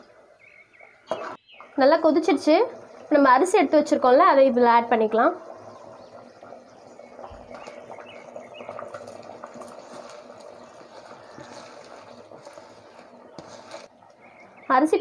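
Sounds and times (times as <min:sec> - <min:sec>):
water boiling and bubbling: 0:00.0 - 0:15.0.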